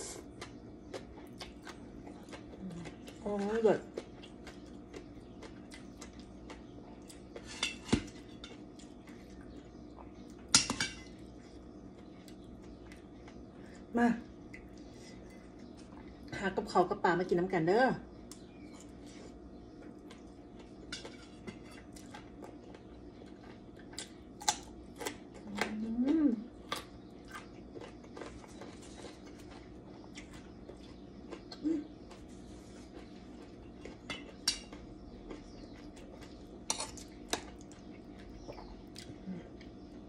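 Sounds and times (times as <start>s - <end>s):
soft chewing: 0.0s - 16.4s, 18.1s - 40.0s
steady low hum: 0.0s - 40.0s
person humming: 25.5s - 26.4s.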